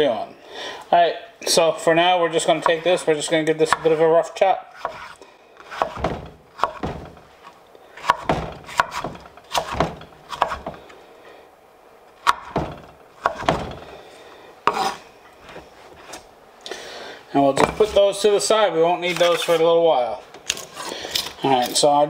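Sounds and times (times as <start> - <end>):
knife chopping on wooden board: 3.7 - 4.0, 4.8 - 7.2, 8.0 - 10.8, 12.2 - 13.8, 14.7 - 15.0.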